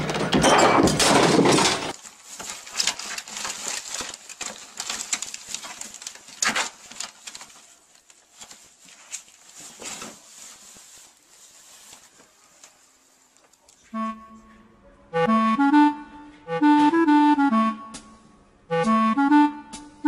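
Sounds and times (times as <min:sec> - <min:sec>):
cloth rustling: 0:01.9 - 0:13.6.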